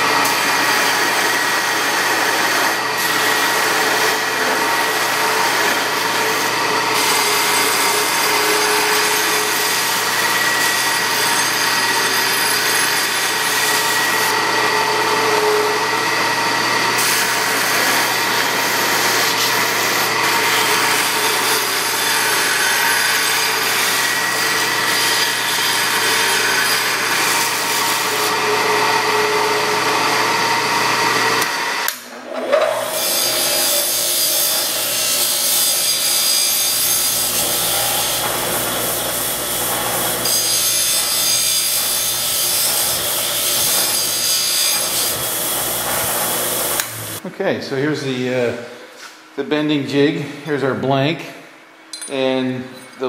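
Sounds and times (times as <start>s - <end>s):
belt sander grinding steel rod: 0.0s - 47.2s
abrasive wheel grinding metal: 32.3s - 47.2s.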